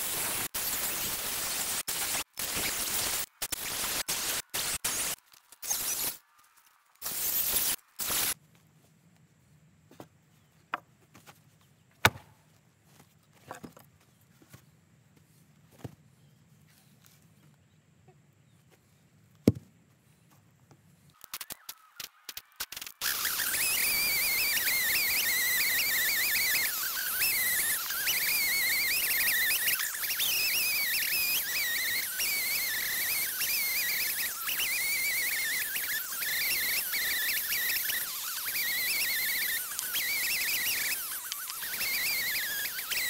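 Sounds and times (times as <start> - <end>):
wooden knocks and thuds: 19.4 - 19.7
circular saw cutting wood: 22.7 - 43.0.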